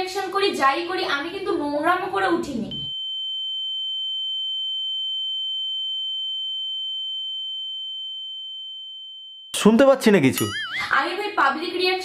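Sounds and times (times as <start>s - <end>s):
high-pitched electronic beep: 10.3s - 10.9s.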